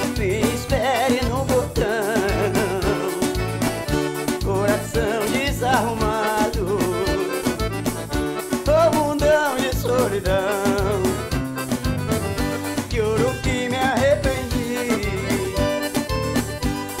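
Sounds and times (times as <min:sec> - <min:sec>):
acoustic guitar: 0:00.0 - 0:17.0
keyboard: 0:00.0 - 0:17.0
quick steady bass pulse: 0:09.8 - 0:16.7.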